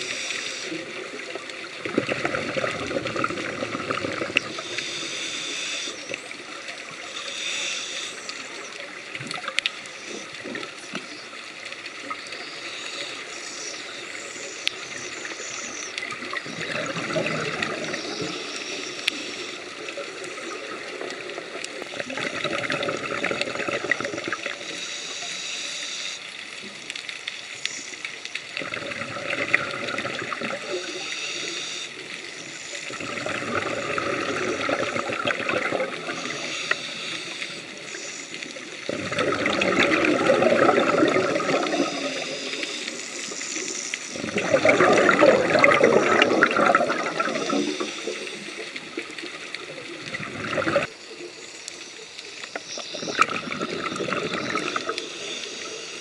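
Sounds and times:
gurgling exhaled bubbles: 0.0s - 5.4s, 14.2s - 24.8s, 28.6s - 31.1s, 32.4s - 51.4s, 52.5s - 56.0s
regulator hissing: 30.6s - 49.6s, 50.4s - 56.0s.

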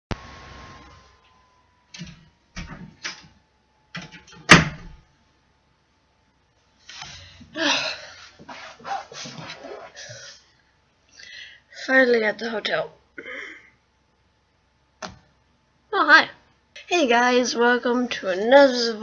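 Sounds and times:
rustling and scuffing: 8.1s - 10.1s.

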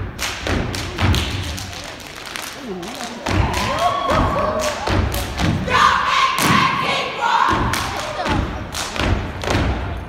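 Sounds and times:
people shouting: 3.3s - 8.4s.

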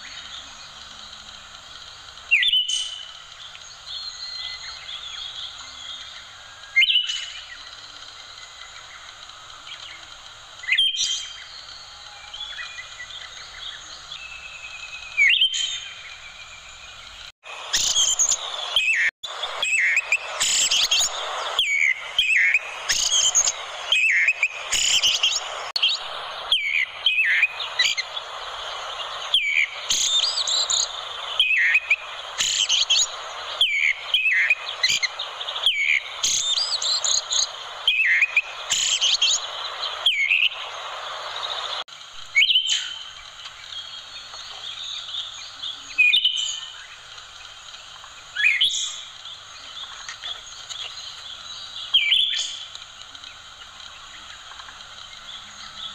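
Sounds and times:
steady hiss: 0.0s - 55.9s
thrush singing whistled phrases: 10.6s - 43.1s.

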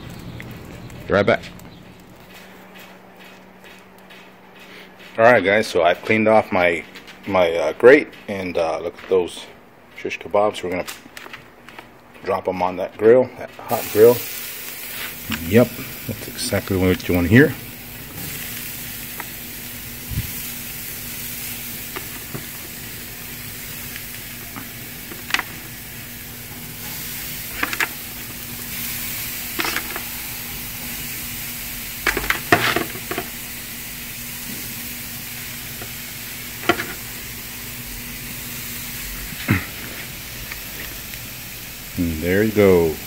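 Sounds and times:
kebabs sizzling on a grill: 0.0s - 8.8s, 13.5s - 43.0s
metal skewers clacking on grate: 27.5s - 28.0s, 29.5s - 30.1s, 32.0s - 33.3s, 36.6s - 37.0s.

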